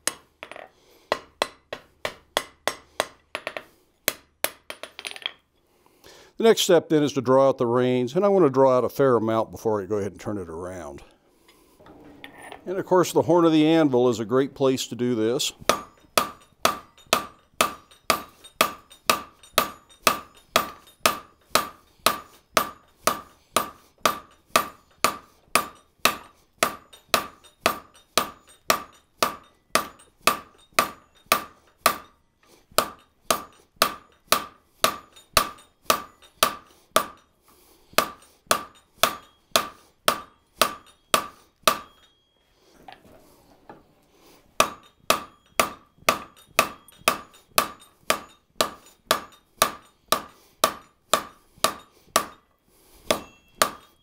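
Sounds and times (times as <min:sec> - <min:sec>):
hammer ringing on hot steel: 0:12.0 - 0:32.2, 0:32.8 - 0:37.3, 0:38.0 - 0:42.4, 0:44.6 - 0:54.0.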